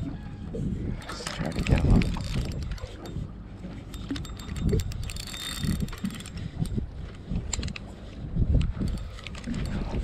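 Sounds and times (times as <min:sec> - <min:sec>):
wind buffeting microphone: 0:00.0 - 0:10.0
fishing reel ticking: 0:03.9 - 0:06.8.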